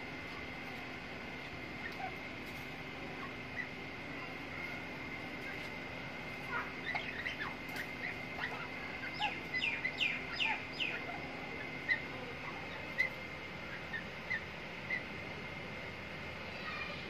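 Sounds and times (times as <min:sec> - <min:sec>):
faint steady high hum: 0:00.0 - 0:17.0
chicks peeping: 0:01.7 - 0:15.2.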